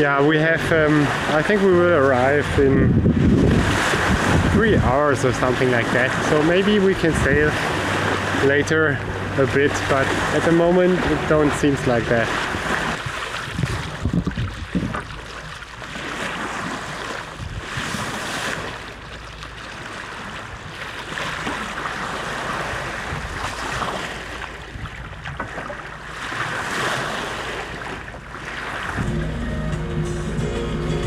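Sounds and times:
water rushing along a boat hull: 0.0 - 31.0
wind on the microphone: 0.6 - 9.3, 11.0 - 18.8, 22.4 - 25.6
music: 29.0 - 31.0.

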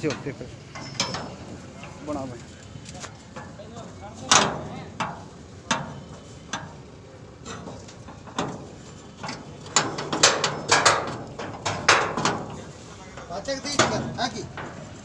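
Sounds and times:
metallic clicks and knocks: 7.4 - 15.0.

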